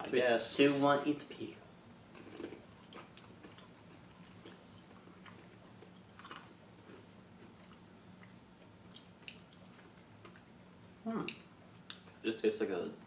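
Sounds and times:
low steady hum: 0.0 - 13.0
soft crunchy chewing: 2.1 - 10.6.

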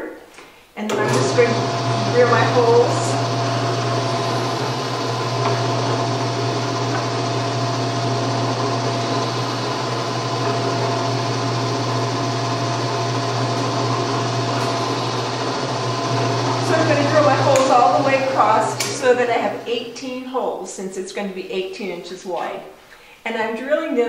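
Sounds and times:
drill press motor hum and whine: 0.9 - 18.9
drill bit boring into wood: 0.9 - 19.0.

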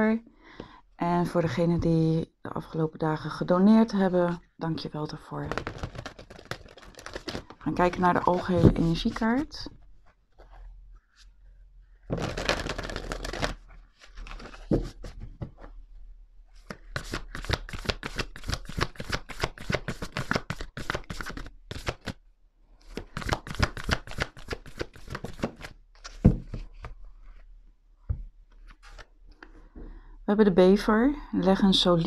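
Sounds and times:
cards being shuffled: 5.4 - 9.5, 12.1 - 15.7, 16.6 - 22.2, 22.8 - 27.4, 28.5 - 29.5.

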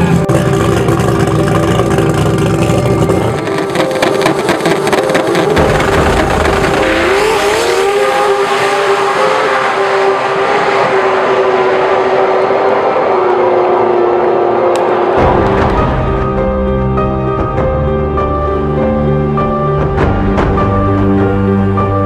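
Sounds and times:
race car engine popping: 0.0 - 8.8
music: 0.0 - 10.4, 13.8 - 22.0
race car launching at full throttle: 0.1 - 16.6.

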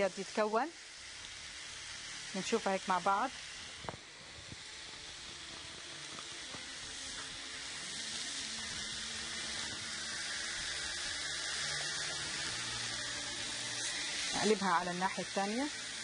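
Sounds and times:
chicken sizzling on a grill: 0.0 - 16.0.

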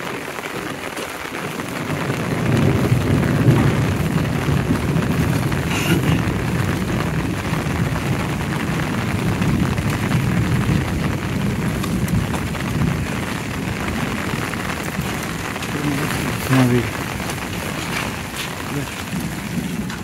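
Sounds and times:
rain on wet street: 0.0 - 20.0.

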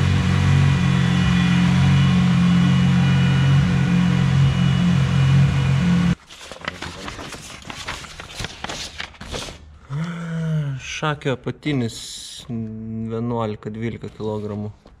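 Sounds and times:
car engine idling: 0.0 - 6.2.

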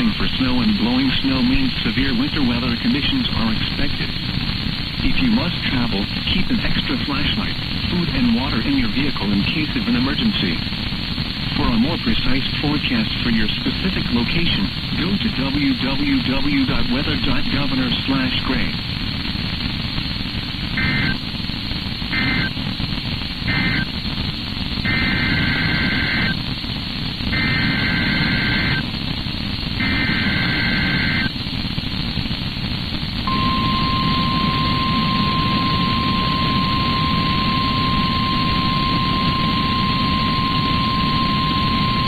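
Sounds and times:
radio static hiss: 0.0 - 42.0
steady warning alert tone: 33.3 - 42.0
two-tone data warble bursts: 33.3 - 42.0.

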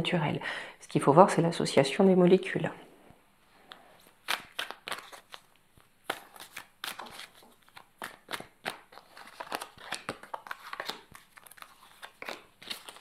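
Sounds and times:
cards being shuffled: 3.7 - 13.0.

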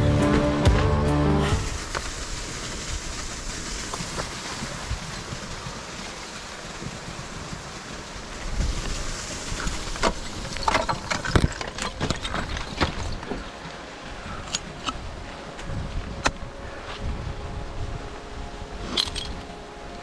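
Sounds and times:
wind rushing on microphone: 1.4 - 20.0
ice axes striking ice: 9.8 - 13.4.

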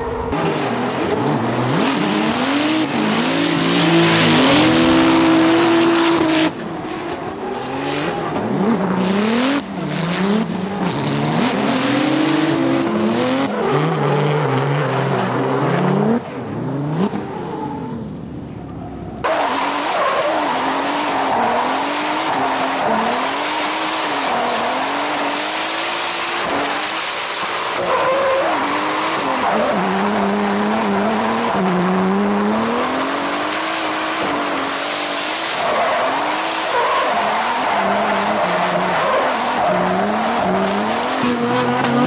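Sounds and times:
car engine revving hard: 0.3 - 6.6, 19.2 - 42.0
tyres squealing and sliding: 16.3 - 42.0.

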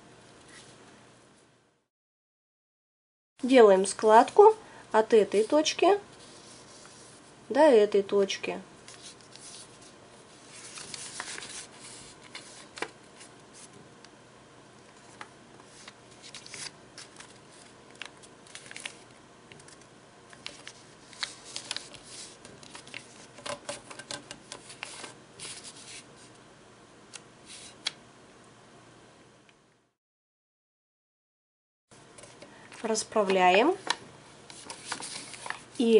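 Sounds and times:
paper crinkling and rustling: 8.9 - 13.8, 14.9 - 26.3, 32.2 - 35.9.

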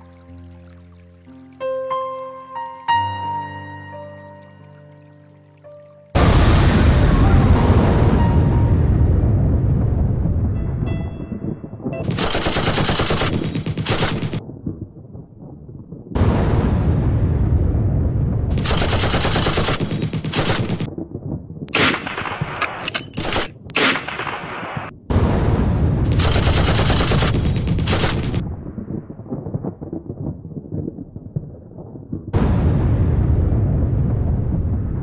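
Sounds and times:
machine-gun fire: 12.0 - 14.4, 18.5 - 20.9, 21.8 - 24.9, 26.1 - 28.4.

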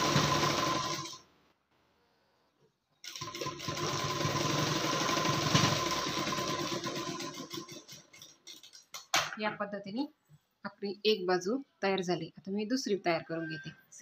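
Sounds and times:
sewing machine stitching: 0.0 - 1.2, 3.0 - 8.4.

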